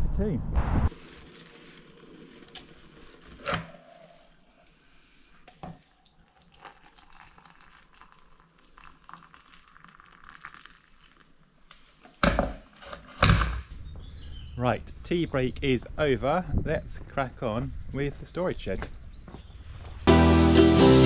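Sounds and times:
water pouring into mug: 5.6s - 11.6s.

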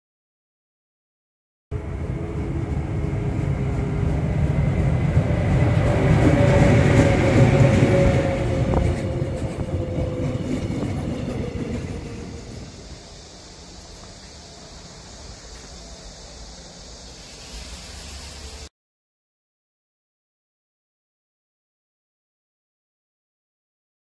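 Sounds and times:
steady locomotive whine: 1.7s - 18.7s
train wheels rumbling on rail: 1.8s - 18.7s.

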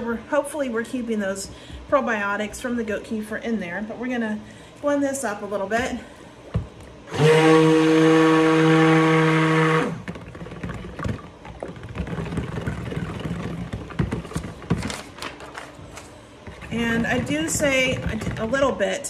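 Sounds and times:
stick blender motor running: 7.1s - 15.2s, 16.4s - 18.8s
blender head knocking and swishing: 7.1s - 15.6s, 16.5s - 18.8s.

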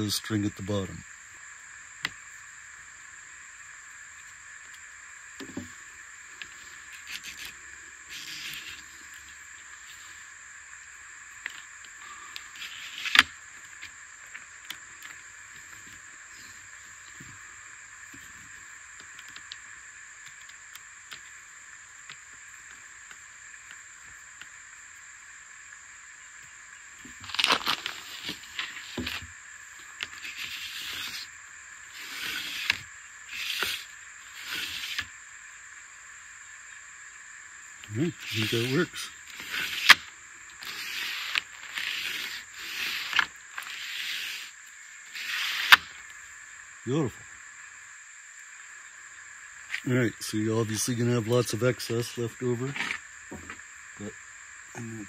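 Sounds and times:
high-pitched background buzz: 0.0s - 55.0s
pleated blind scraping and rustling: 40.6s - 45.9s.

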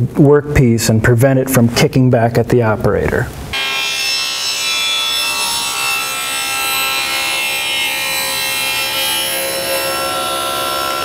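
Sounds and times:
saw cutting wood: 3.5s - 11.0s
table saw whine: 3.5s - 11.0s.

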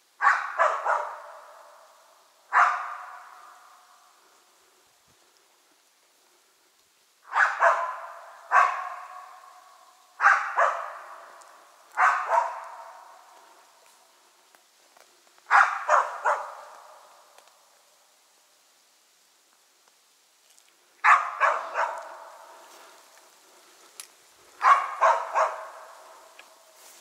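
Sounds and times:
dog barking with echo: 0.2s - 1.9s, 2.5s - 3.8s, 7.3s - 11.4s, 12.0s - 13.3s, 15.5s - 17.1s, 21.0s - 22.6s, 24.6s - 26.3s.

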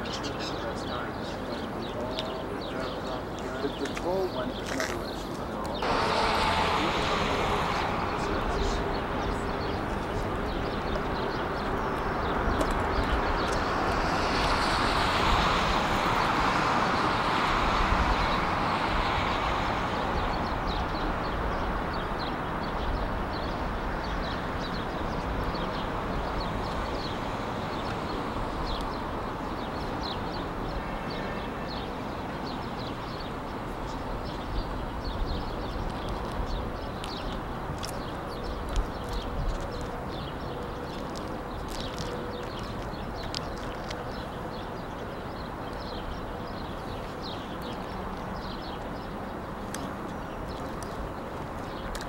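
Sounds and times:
traffic noise: 0.0s - 52.0s
vehicle passing: 5.8s - 12.3s.

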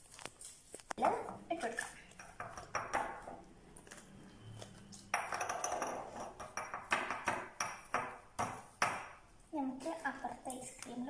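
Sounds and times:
metal spoon clinking on glass bowl: 5.0s - 8.1s.

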